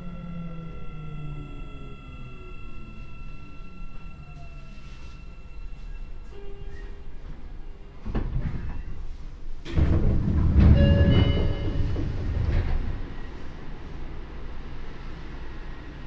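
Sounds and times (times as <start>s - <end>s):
train doors sliding open: 4.6s - 13.8s
clunk: 9.6s - 13.0s.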